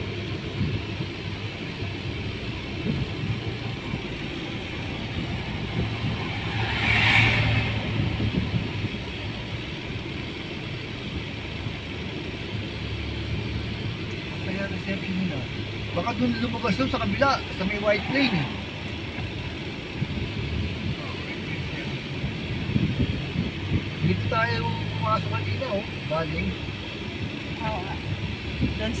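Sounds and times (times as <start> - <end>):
car engine and road noise: 0.0 - 29.0
rushing sound: 3.7 - 10.1, 16.6 - 19.2.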